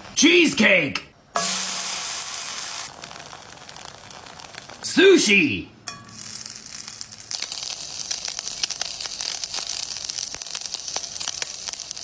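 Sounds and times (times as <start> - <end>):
food sizzling in a skillet: 1.4 - 4.8, 5.9 - 12.0.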